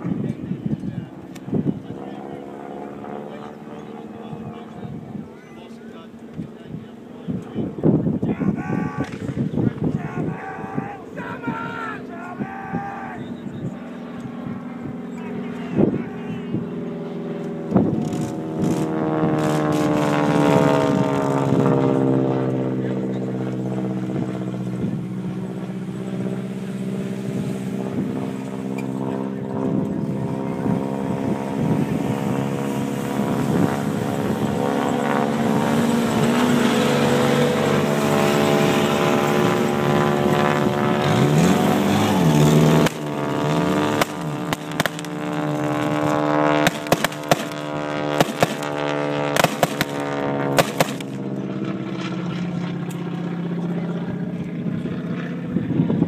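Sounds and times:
vehicle engine running: 0:13.2 - 0:56.0
short sharp pops: 0:44.0 - 0:45.1, 0:46.6 - 0:47.6, 0:49.4 - 0:50.0.

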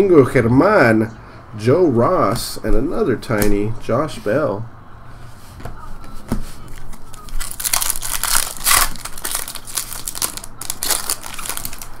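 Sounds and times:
foil wrapper crinkling: 0:06.8 - 0:12.0.

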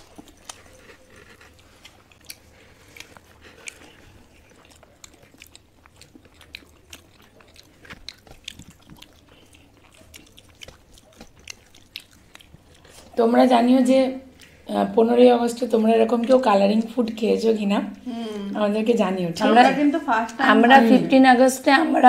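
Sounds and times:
people chewing food: 0:00.0 - 0:22.0
wet mouth clicks and smacks: 0:01.8 - 0:13.1.

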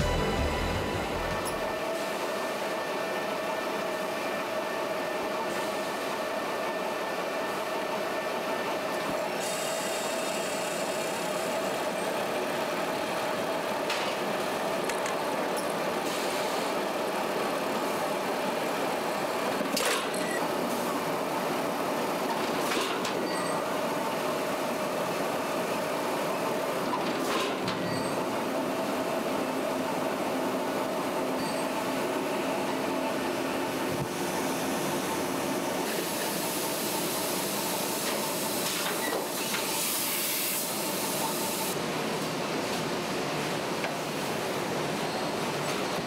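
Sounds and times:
machinery clattering and humming: 0:00.0 - 0:02.5
hiss: 0:35.9 - 0:41.8.

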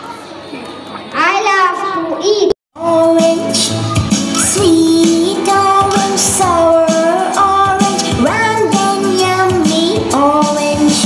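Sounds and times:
children's song with sung melody: 0:02.8 - 0:11.0
music backing: 0:02.8 - 0:11.0.

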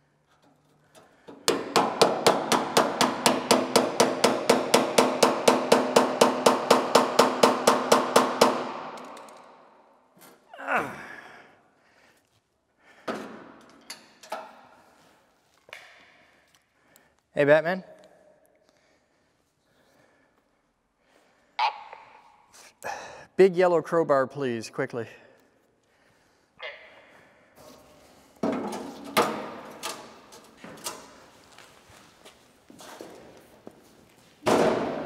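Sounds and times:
metal hammering on bolt: 0:01.3 - 0:09.4.

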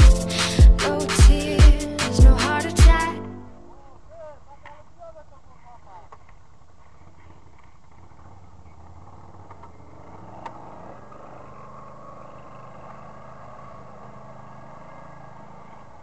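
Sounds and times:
quad bike engine running: 0:08.0 - 0:16.0.

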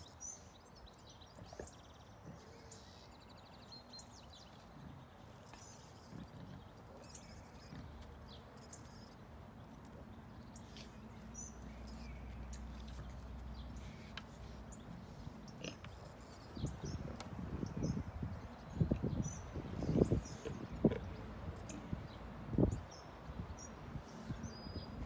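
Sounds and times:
boar rooting in dry soil: 0:00.0 - 0:25.0
small birds chirping: 0:00.0 - 0:25.0.

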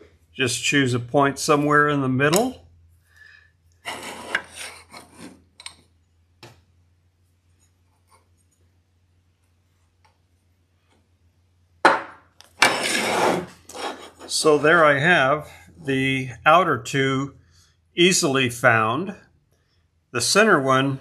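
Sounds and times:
loud metal scrape: 0:03.8 - 0:05.4, 0:12.6 - 0:14.9
metal scraping on metal: 0:03.8 - 0:05.4, 0:12.6 - 0:15.0.

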